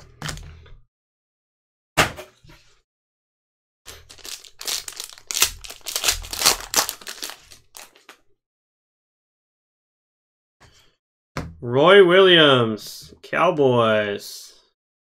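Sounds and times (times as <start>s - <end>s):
card wrapper crinkling: 3.9s - 8.2s.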